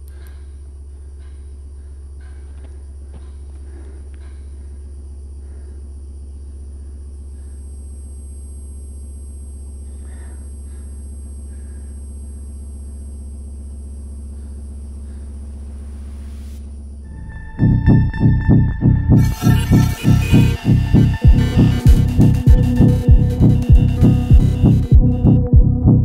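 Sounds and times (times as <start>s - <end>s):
low rumbling drone: 14.3s - 26.0s.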